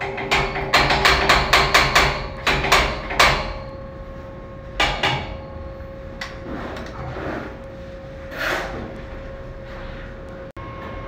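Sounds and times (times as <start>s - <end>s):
hammer striking steel frame: 0.0s - 3.8s, 4.8s - 5.6s
faint steady hum: 1.6s - 11.0s.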